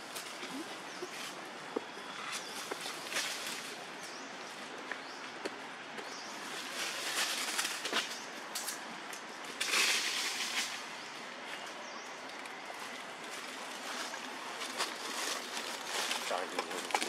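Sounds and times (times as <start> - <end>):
rustling: 6.4 - 8.8, 12.5 - 17.0.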